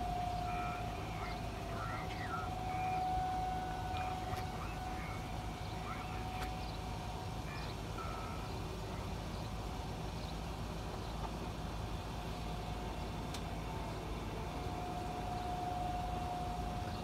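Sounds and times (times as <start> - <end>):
distant warning siren: 0.0 - 17.0
highway traffic hum: 0.0 - 17.0.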